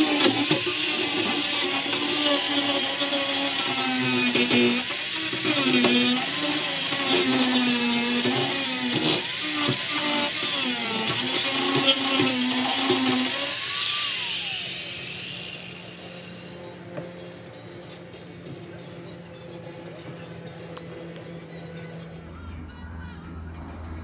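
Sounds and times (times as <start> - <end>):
handheld power tool running: 0.0 - 16.9.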